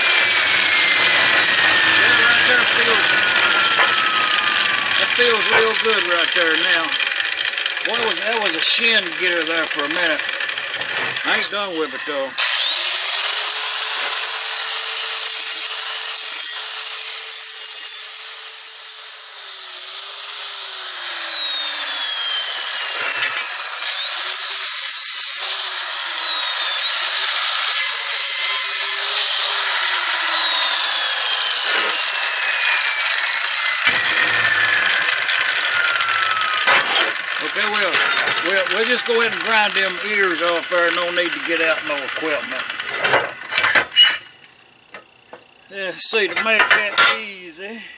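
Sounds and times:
angle grinder grinding steel: 0:00.0 - 0:47.7.

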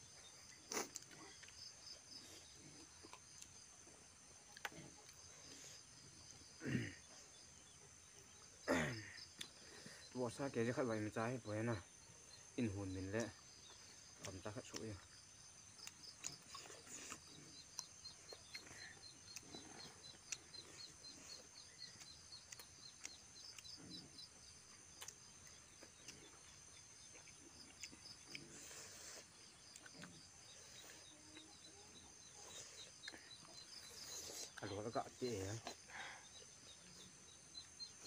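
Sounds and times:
insects chirping: 0:00.0 - 0:38.0
chewing clicks and smacks: 0:00.2 - 0:03.6, 0:04.4 - 0:05.6, 0:09.3 - 0:09.6, 0:13.2 - 0:31.6, 0:32.2 - 0:34.7.

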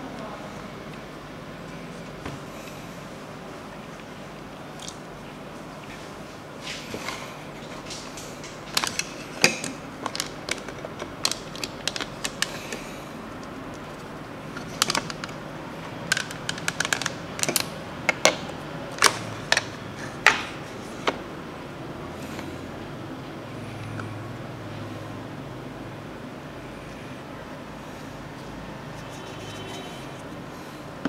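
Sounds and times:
plastic toy pieces clicking: 0:08.8 - 0:12.8, 0:16.1 - 0:18.4.

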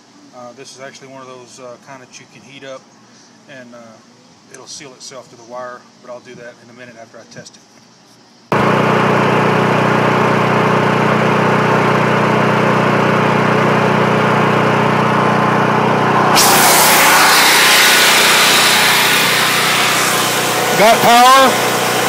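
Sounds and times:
generator engine running: 0:08.5 - 0:22.0.

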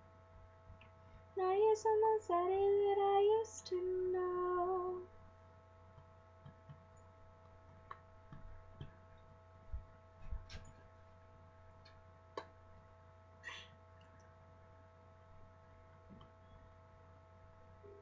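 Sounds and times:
electrical hum: 0:00.0 - 0:18.0
faint clicks and knocks: 0:05.9 - 0:11.0.

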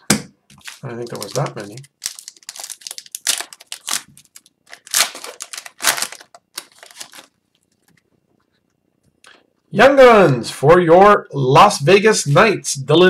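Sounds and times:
card pack wrappers crinkling and tearing: 0:00.5 - 0:07.9.

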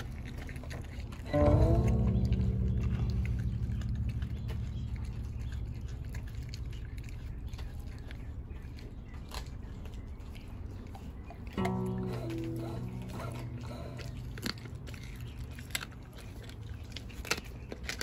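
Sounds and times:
dog gnawing bone: 0:00.0 - 0:18.0
low droning hum: 0:00.0 - 0:18.0.

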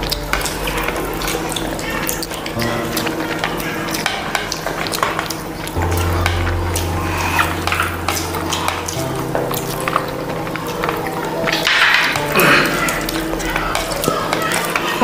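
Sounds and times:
background music with bass notes: 0:05.8 - 0:13.8
fingers mixing rice on plates: 0:09.5 - 0:15.0.

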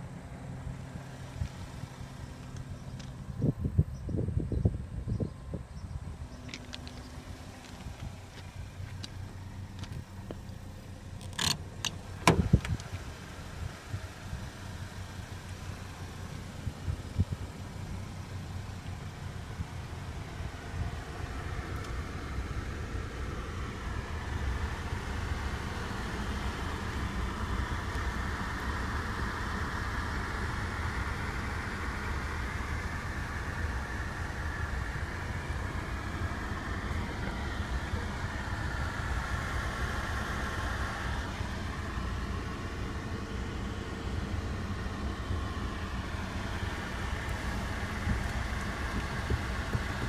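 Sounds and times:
low cabin rumble: 0:00.0 - 0:50.0
car door opening: 0:11.1 - 0:13.1
car door clicks and thud: 0:11.2 - 0:13.1.

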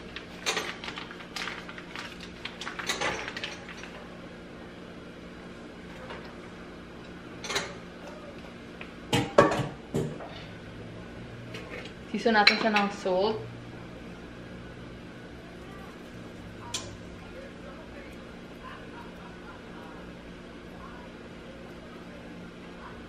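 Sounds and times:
faint steady hum: 0:00.0 - 0:23.0
plastic bag crinkling: 0:00.1 - 0:04.0
kitchenware knocking down: 0:09.1 - 0:10.2.

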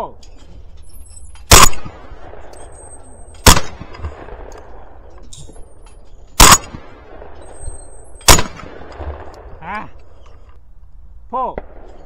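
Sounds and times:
shotgun shots with echo: 0:01.5 - 0:02.5, 0:03.4 - 0:05.0, 0:06.4 - 0:09.4.

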